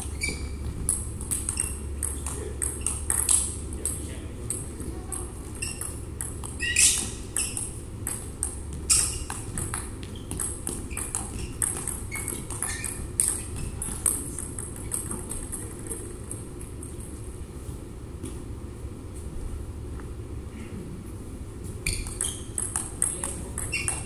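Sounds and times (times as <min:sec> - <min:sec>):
shoes squeaking on floor: 0:00.0 - 0:03.6, 0:04.8 - 0:16.1, 0:21.6 - 0:24.0
ping pong ball clicking: 0:00.2 - 0:16.4, 0:21.9 - 0:24.0.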